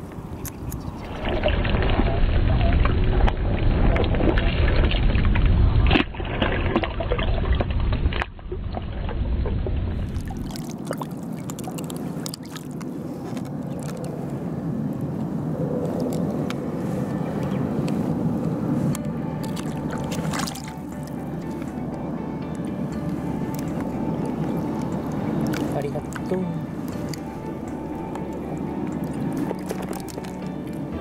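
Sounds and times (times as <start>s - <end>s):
water sloshing and splashes: 0.0s - 31.0s
heavy low rumble: 12.8s - 31.0s.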